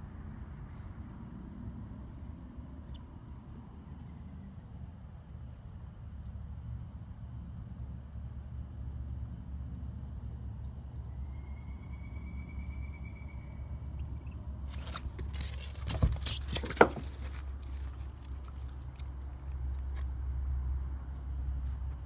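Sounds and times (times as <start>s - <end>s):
phone handling rustles and knocks: 14.7s - 17.5s.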